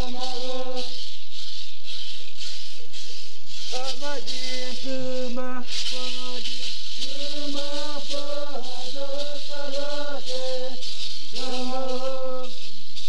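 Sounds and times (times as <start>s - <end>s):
chanted singing: 0.0s - 2.0s, 2.9s - 13.0s
shaken rattle: 0.0s - 13.0s.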